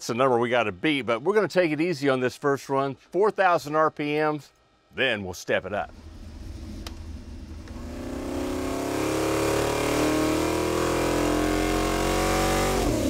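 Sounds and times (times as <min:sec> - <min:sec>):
engine running under load: 0:05.9 - 0:10.7.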